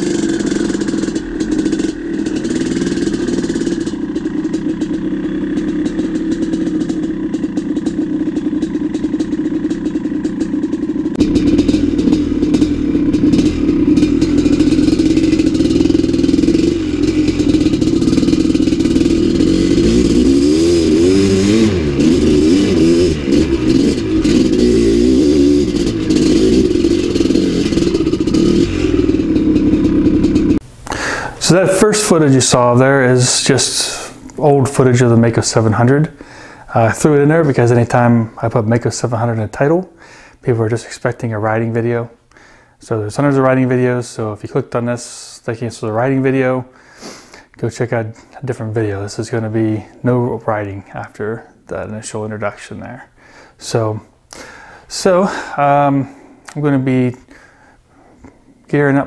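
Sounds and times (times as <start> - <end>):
dirt bike engine revving: 0.0 - 39.2.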